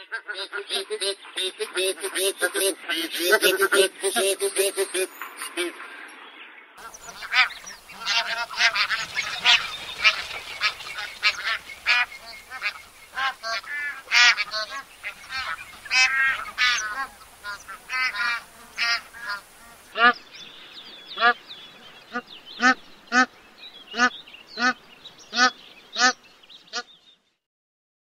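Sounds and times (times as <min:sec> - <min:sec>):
geese honking: 0:06.8 - 0:20.2.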